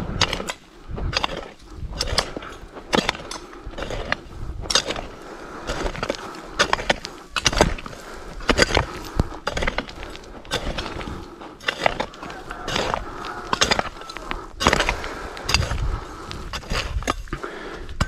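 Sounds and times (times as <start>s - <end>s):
tools scraping soil: 0.0s - 18.0s
digging tools chopping into soil: 0.1s - 18.0s.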